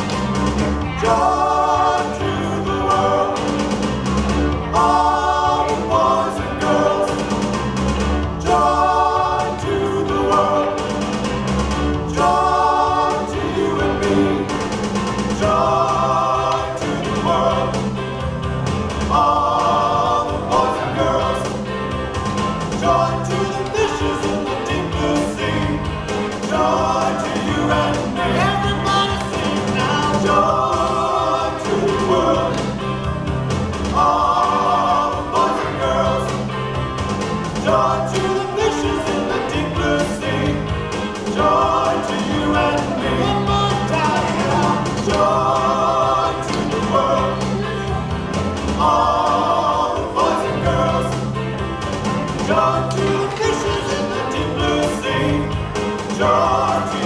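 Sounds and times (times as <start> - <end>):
instrumental backing with bass: 0.0 - 57.0
voices singing a melody: 0.0 - 57.0.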